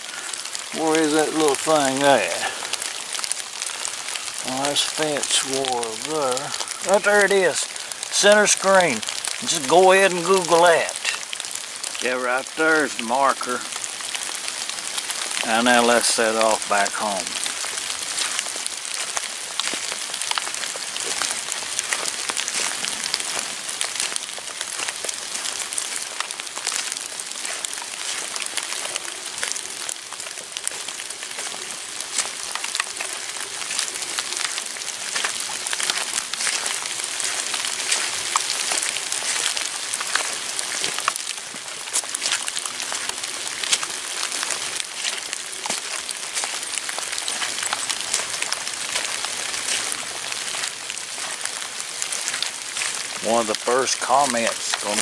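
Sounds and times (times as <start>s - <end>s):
drops tapping on wet leaves: 0.0s - 55.0s
steady rain: 0.0s - 55.0s.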